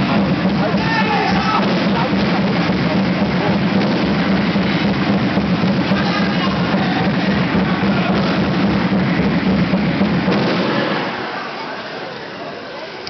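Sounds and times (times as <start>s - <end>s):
music with drums: 0.0s - 11.2s.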